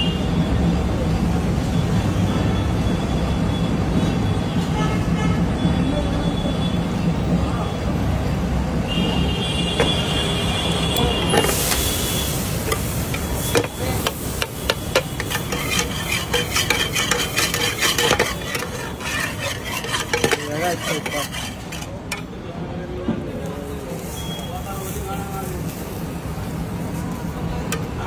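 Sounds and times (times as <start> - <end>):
metal spatula scraping a pan: 11.0 - 22.3
fat sizzling in a pan: 11.2 - 21.9
spatula clicking on a pan: 12.7 - 22.2.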